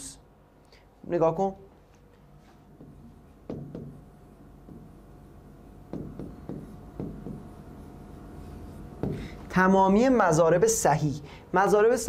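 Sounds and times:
faint electrical hum: 0.0s - 12.0s
stylus tapping on glass screen: 2.8s - 4.0s, 4.6s - 5.0s, 5.9s - 7.6s, 9.0s - 9.3s.

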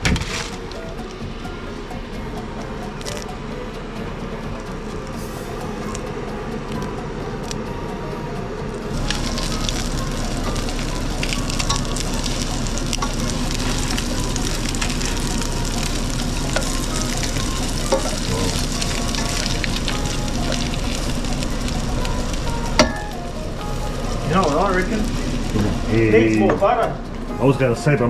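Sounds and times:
fish sizzling in a pan: 8.9s - 26.4s.

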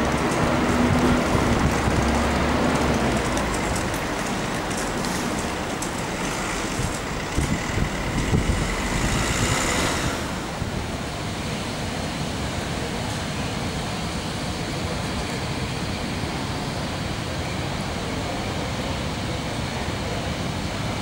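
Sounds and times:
passing vehicles rumbling: 0.0s - 12.9s
engine hum: 0.0s - 13.3s.

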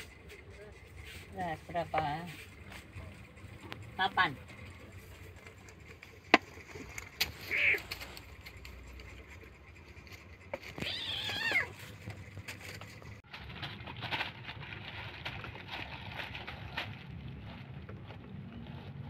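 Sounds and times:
kitten meowing: 7.5s - 7.8s, 10.8s - 11.8s
plastic bag rustling: 10.8s - 19.0s.

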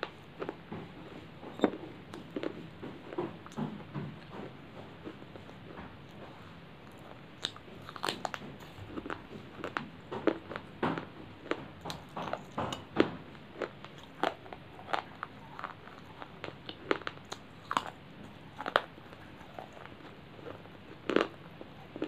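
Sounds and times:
crunchy chewing: 0.0s - 22.0s.

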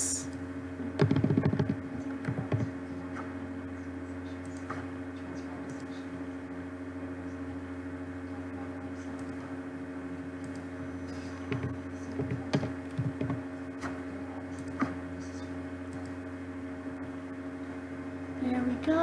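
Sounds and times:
low electrical hum: 0.0s - 19.0s
keyboard keystrokes: 1.0s - 2.6s
computer mouse clicks: 10.4s - 10.7s, 15.9s - 16.2s.

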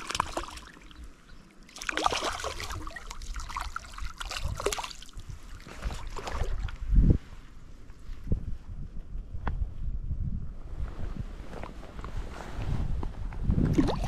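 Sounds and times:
fish splashing in water: 0.0s - 6.7s.

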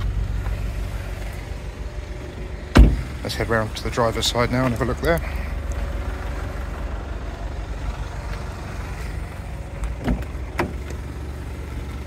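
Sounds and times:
steady low rumble: 0.0s - 12.0s
car door latch clicks: 9.8s - 11.0s.

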